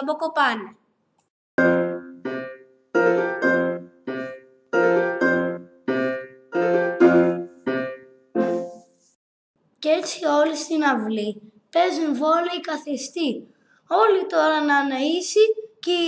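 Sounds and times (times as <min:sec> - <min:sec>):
slow piano chords: 0:01.6 - 0:09.0.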